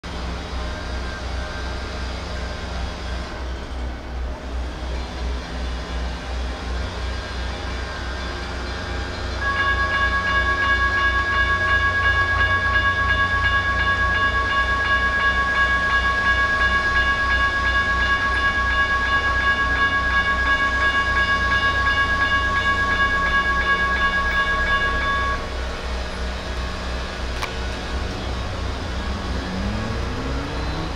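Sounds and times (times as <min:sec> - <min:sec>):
crossing bell ringing: 0:07.5 - 0:28.5.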